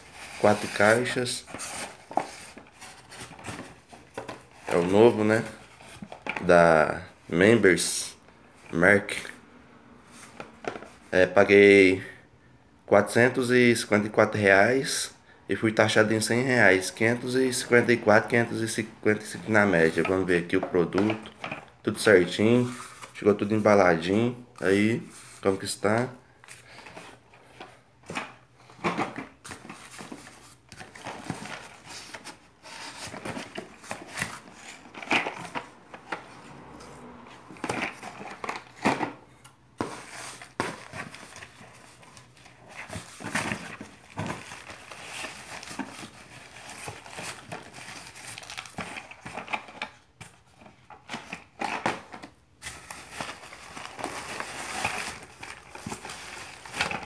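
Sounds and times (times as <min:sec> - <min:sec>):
shredded paper crinkling: 0:52.6 - 0:57.0.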